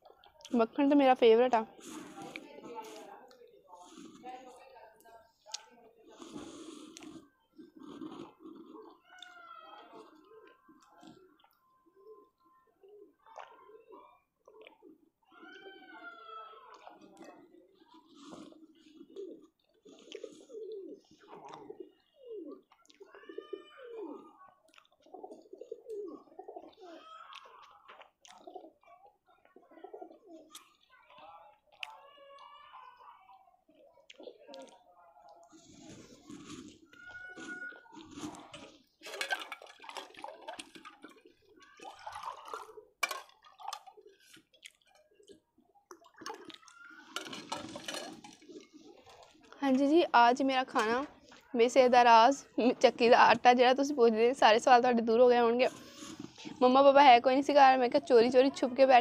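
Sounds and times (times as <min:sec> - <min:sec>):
pigeons cooing: 0:07.2 - 0:30.7
liquid splashing and dripping: 0:39.1 - 0:49.4.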